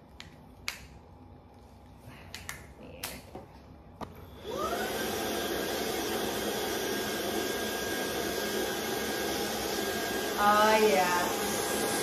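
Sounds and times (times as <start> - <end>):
vacuum motor whining: 4.2 - 12.0.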